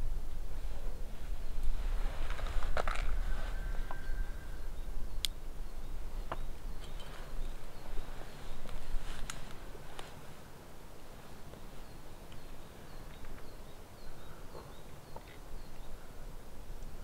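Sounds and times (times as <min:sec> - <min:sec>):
faint sharp clicks: 0:05.2 - 0:05.4.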